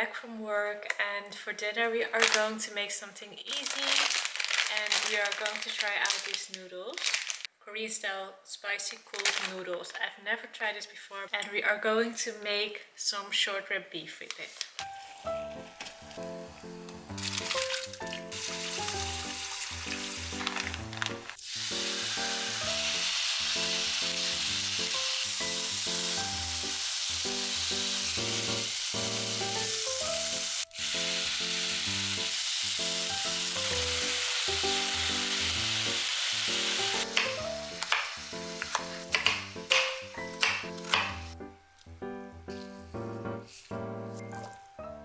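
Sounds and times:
soft background music: 14.8s - 45.0s
beef sizzling in frying pan: 16.0s - 41.4s
water poured through metal sieve: 17.2s - 23.8s.

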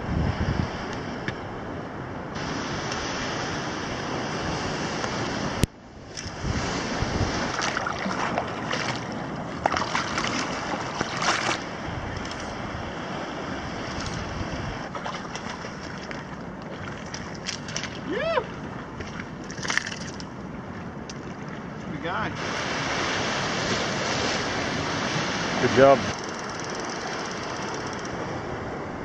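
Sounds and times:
wind buffeting microphone: 0.0s - 29.0s
water lapping against rocks: 6.1s - 26.2s.

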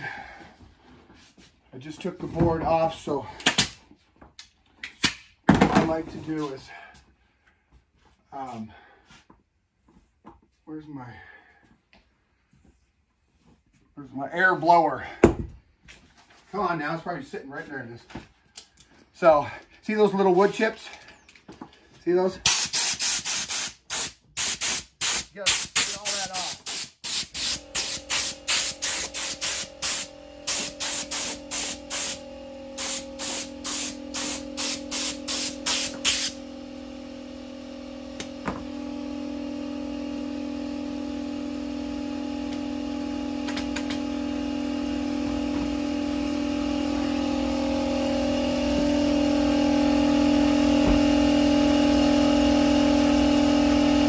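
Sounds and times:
air compressor humming: 20.9s - 54.0s
compressed air blasts: 22.4s - 36.4s.

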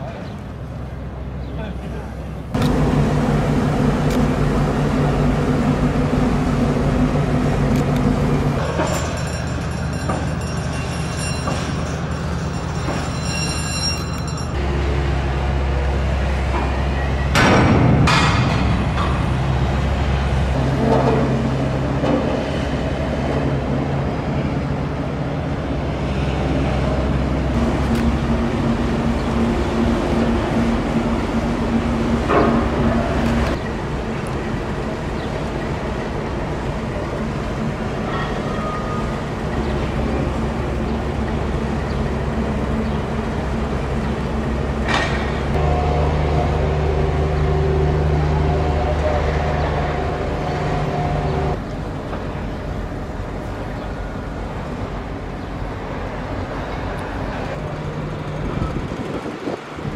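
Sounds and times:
idling engines humming: 0.1s - 59.9s
louder engine tone: 38.6s - 51.6s.

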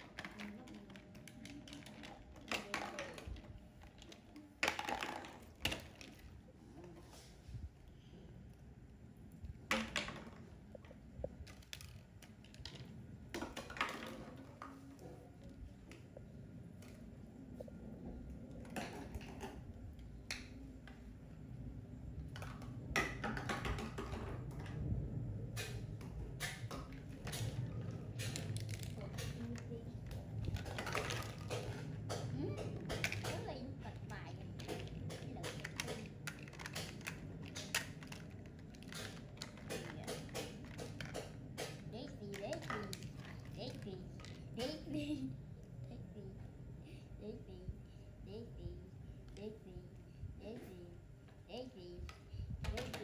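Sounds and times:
plastic toy bottle clicking and rustling: 0.0s - 6.4s, 25.6s - 44.9s.

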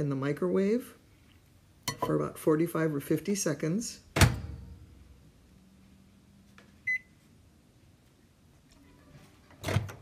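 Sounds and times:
keypad beep: 6.9s - 7.1s.

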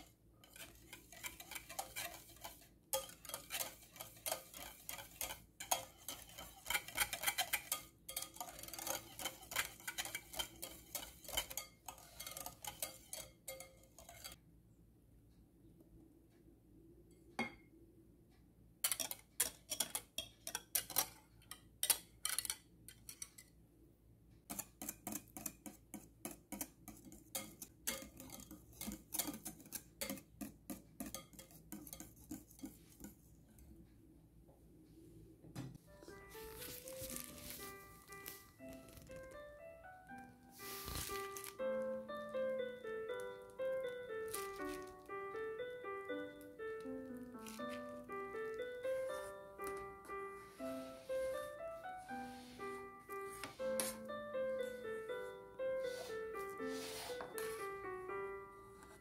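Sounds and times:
whisk scraping a glass bowl: 0.0s - 14.4s, 18.8s - 21.2s, 24.5s - 33.3s.

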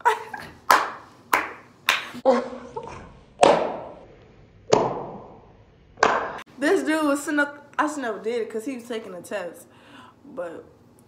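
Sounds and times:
woman clapping hands: 0.7s - 2.1s.

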